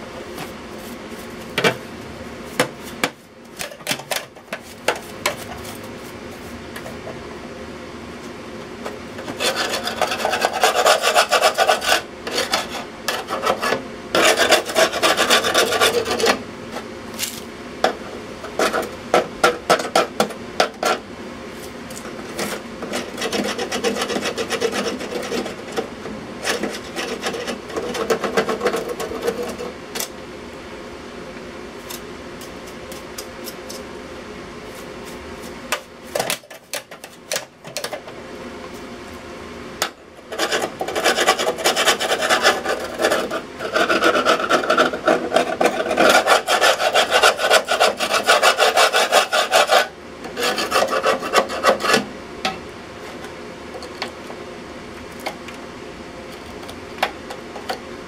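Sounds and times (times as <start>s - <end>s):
hand scraper scraping rusty metal: 9.2s - 16.4s, 18.5s - 21.0s, 22.2s - 29.7s, 40.3s - 52.1s.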